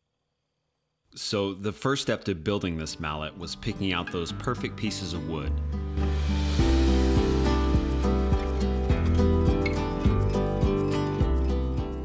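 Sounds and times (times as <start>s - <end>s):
background music with steady beat: 5.5s - 12.0s.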